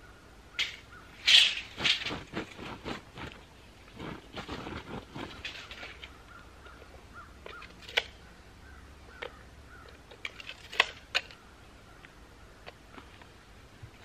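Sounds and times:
faint bird calls: 0.0s - 1.2s, 5.1s - 10.4s, 11.2s - 13.6s.

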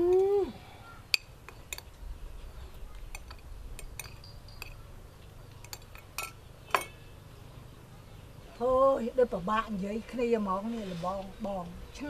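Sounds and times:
cutlery clinking on plate: 5.6s - 7.0s.

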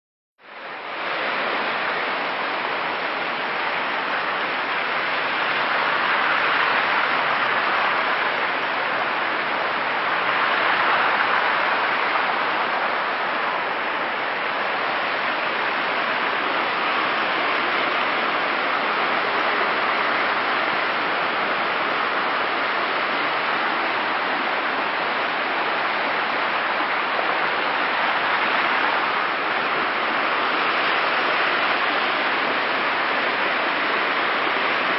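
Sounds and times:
water rushing down ravine: 0.4s - 34.9s.

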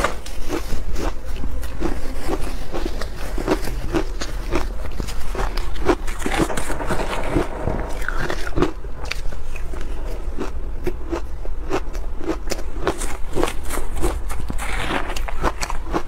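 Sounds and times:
crunching shaved ice: 10.4s - 16.0s.

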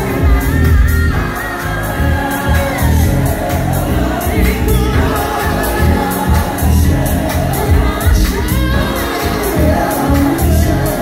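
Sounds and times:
gospel house music: 0.0s - 11.0s
man singing into microphone: 4.2s - 11.0s.

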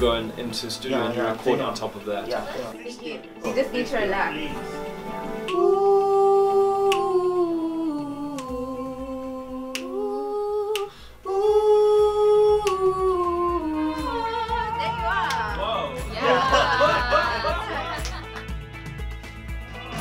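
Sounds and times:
person singing vocal exercise: 5.4s - 17.5s.

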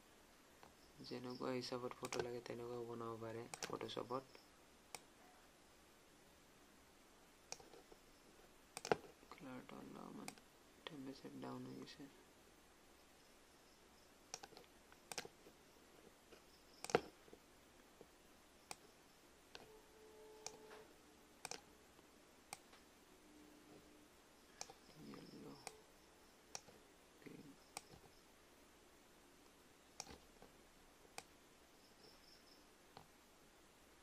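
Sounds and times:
computer mouse clicks: 1.9s - 2.4s, 3.4s - 5.1s, 7.5s - 8.0s, 8.7s - 9.4s, 10.1s - 10.4s, 14.3s - 15.5s, 16.3s - 17.2s, 18.6s - 18.9s, 20.4s - 20.8s, 21.4s - 21.7s, 22.5s - 22.8s, 24.5s - 25.8s, 26.5s - 28.2s, 29.4s - 30.4s, 31.1s - 31.4s.

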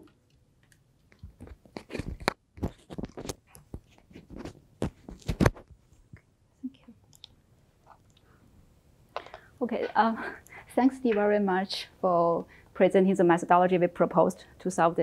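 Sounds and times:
microphone handling knocks and rustles: 1.2s - 6.2s.

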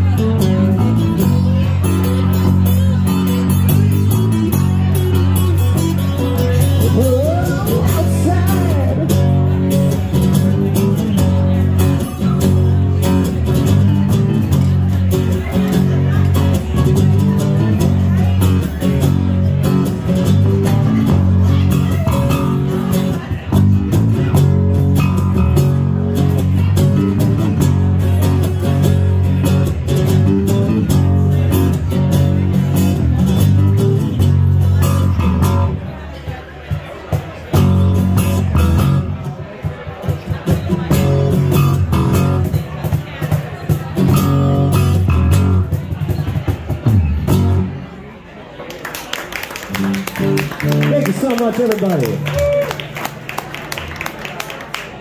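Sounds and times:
electric bass: 0.0s - 48.2s, 49.6s - 55.0s
strummed acoustic guitar: 0.0s - 48.2s
percussion beat: 49.6s - 53.3s.

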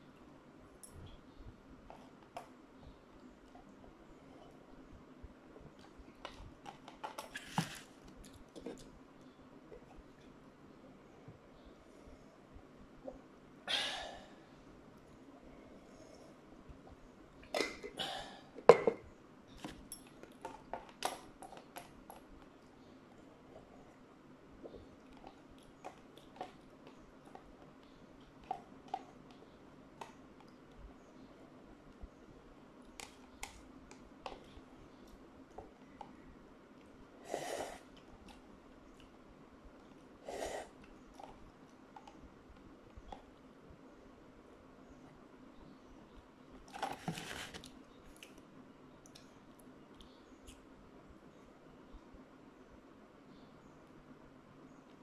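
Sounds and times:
paper cup rustling: 6.7s - 8.0s, 46.7s - 47.7s
faint small clicks: 47.6s - 50.7s.

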